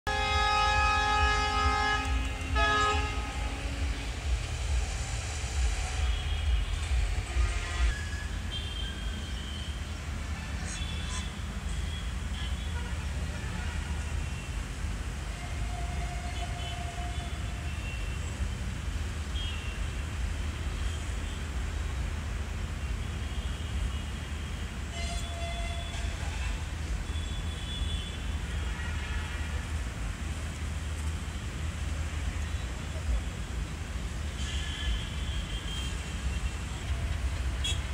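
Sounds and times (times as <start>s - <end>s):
locomotive horn blasts: 0.1s - 4.9s, 5.7s - 9.6s, 15.3s - 18.1s, 24.8s - 29.8s
distant diesel locomotive rumble: 0.1s - 11.2s
low rumble: 3.3s - 7.9s.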